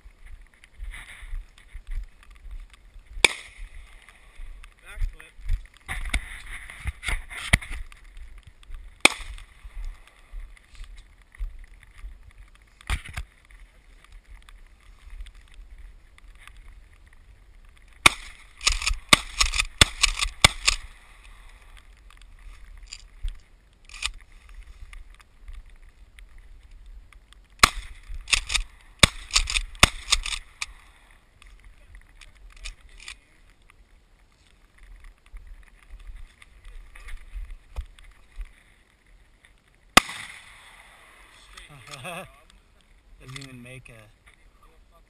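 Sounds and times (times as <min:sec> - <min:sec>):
shotgun shots: 0:18.0 - 0:20.9, 0:27.6 - 0:30.5, 0:40.0 - 0:40.9
gun action clacks: 0:27.6 - 0:30.5.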